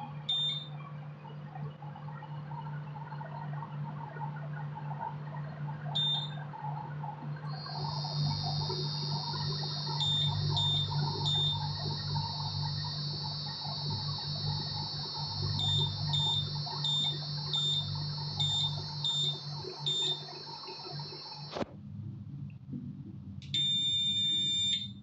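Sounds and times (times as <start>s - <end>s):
induction cooktop whine and hum: 0.0s - 25.0s
touch-panel button beeps: 0.3s - 0.7s, 6.0s - 6.3s, 23.6s - 25.0s.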